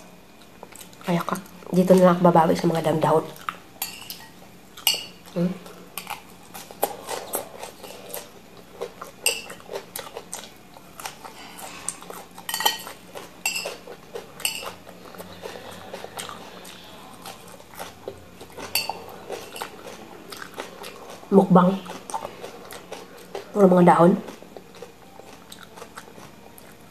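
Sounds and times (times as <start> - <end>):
fork clinking against bowl: 3.8 - 5.2, 12.5 - 13.8, 14.4 - 14.8, 18.6 - 19.7.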